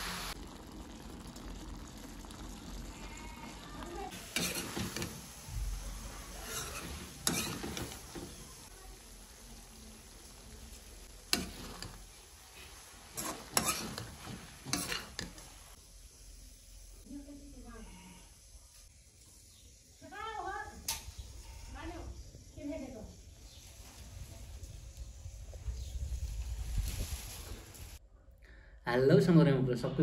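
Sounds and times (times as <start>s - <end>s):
soft sizzle: 0.0s - 28.0s
utensil scraping a pan: 4.1s - 8.7s, 11.3s - 15.8s.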